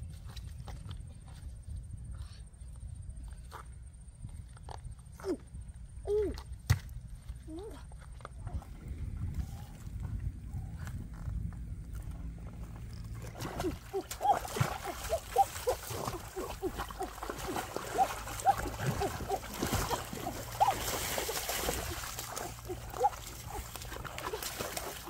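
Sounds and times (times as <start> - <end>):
hands splashing stream water: 13.2 - 25.0.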